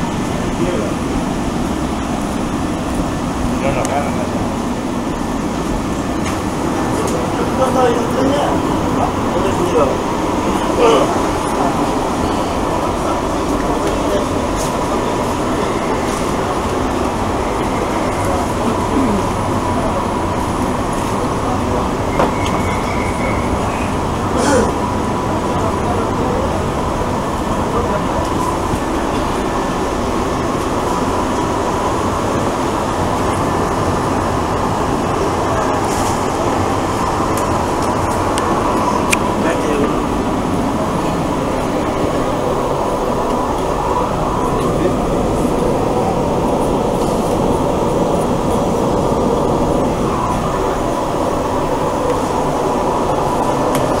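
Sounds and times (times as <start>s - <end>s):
metro train running on track: 0.0s - 54.0s
faint high whine: 21.3s - 24.2s.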